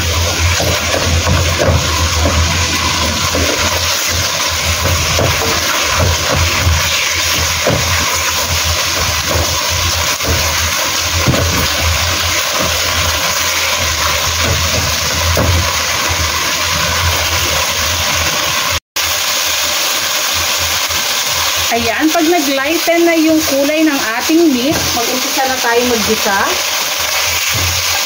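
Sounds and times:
spatula scraping wok: 0.0 - 18.2
meat sizzling in a wok: 0.0 - 28.0.

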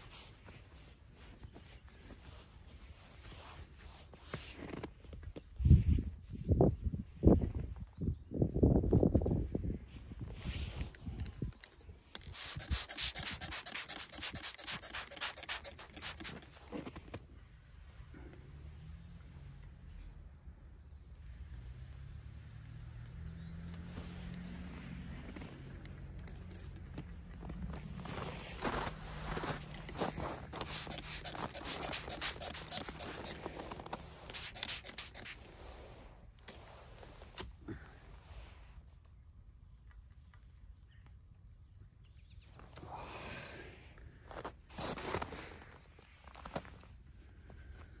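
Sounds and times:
spray bottle spraying water: 12.2 - 16.4, 29.4 - 35.4
clothing scratching and rustling: 12.3 - 17.2, 26.3 - 37.4.

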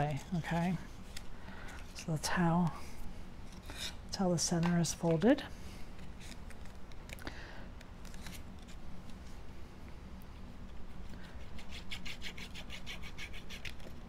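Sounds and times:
glue bottle tip scraping card: 11.4 - 13.9.

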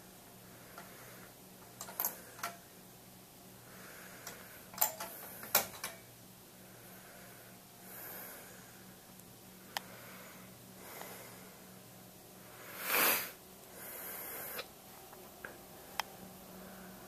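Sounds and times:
faint low hum: 0.0 - 17.0
person breathing noisily: 0.4 - 1.4, 3.6 - 5.5, 6.6 - 9.0, 9.6 - 11.8, 12.4 - 14.7.

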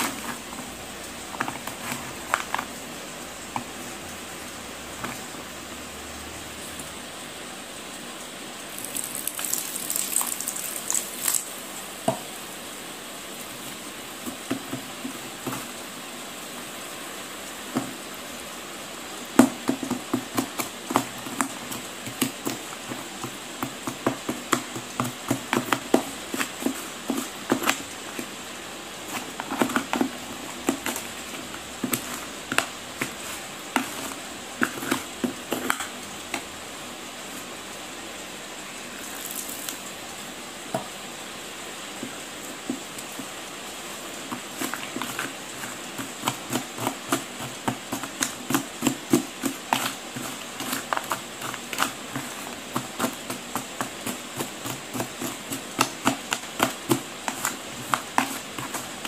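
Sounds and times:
spoon crunching dried clay: 8.7 - 11.5, 19.6 - 28.4, 29.0 - 36.5, 43.0 - 59.0
gritty rustle of clay: 20.0 - 36.0, 42.8 - 59.0.

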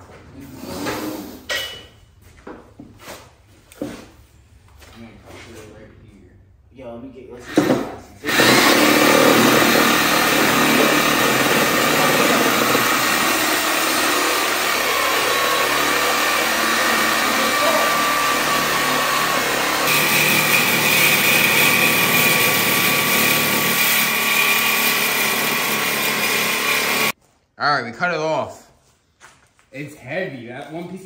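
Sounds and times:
cutoff wheel grinding steel: 8.2 - 27.2.

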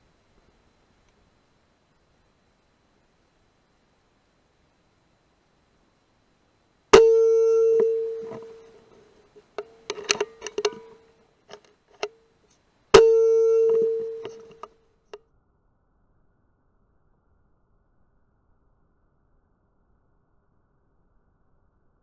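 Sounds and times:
air rifle shots with metallic ring: 7.0 - 8.8, 9.6 - 11.1, 13.0 - 14.6
handling clicks: 7.0 - 12.2, 13.0 - 14.7.

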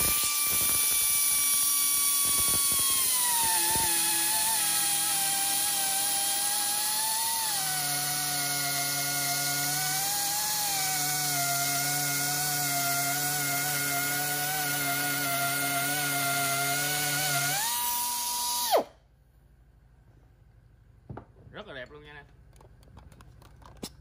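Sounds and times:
electric trimmer whining: 0.0 - 18.9.

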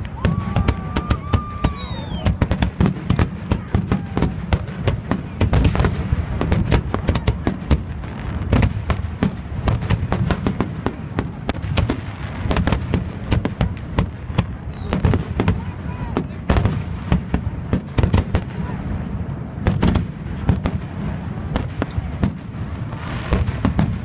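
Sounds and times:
falling firework whistle: 0.0 - 2.7, 14.6 - 15.2
fireworks bangs and crackles: 0.0 - 24.0.

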